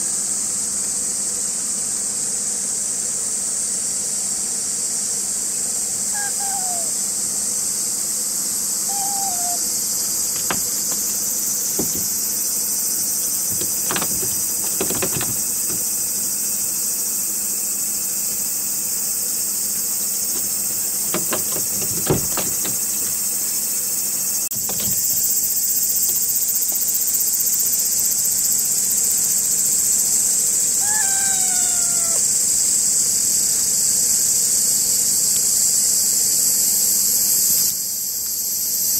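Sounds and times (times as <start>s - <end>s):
insect chorus drone: 0.0s - 38.9s
kitten mewing: 6.1s - 7.0s, 8.9s - 9.7s, 30.9s - 32.2s
knocks on plastic crate: 10.4s - 12.2s, 13.5s - 15.9s, 20.4s - 23.2s.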